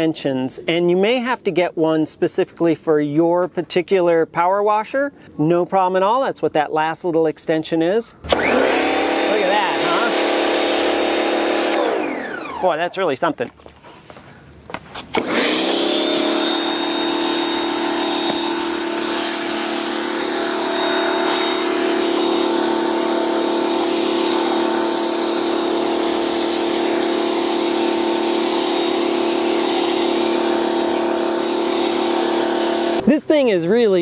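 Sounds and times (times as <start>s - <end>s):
pressure washer motor running: 8.3s - 12.8s, 15.2s - 33.0s
water jets spraying hiss: 16.7s - 33.0s.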